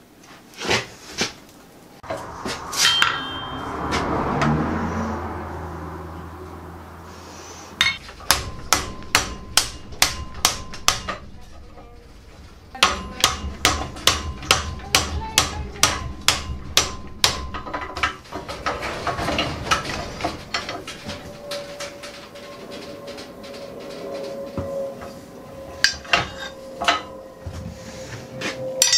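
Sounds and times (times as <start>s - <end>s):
hammer striking hot steel: 2.0s - 4.5s, 7.8s - 18.8s.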